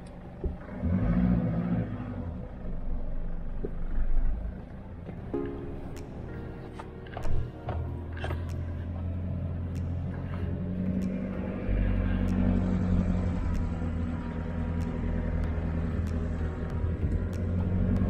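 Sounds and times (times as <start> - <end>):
car engine running: 0.0 - 18.0
light ticks: 9.7 - 10.2, 10.9 - 11.4, 12.2 - 18.0.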